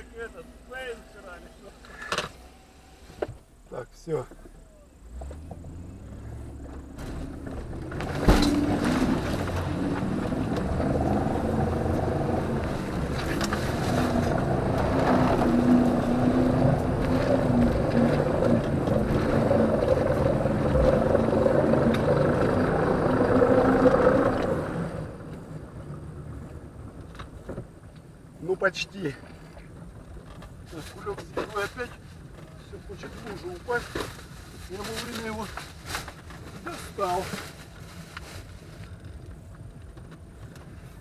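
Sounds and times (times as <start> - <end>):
engine revving hard: 7.3 - 25.2
thump: 8.0 - 8.9.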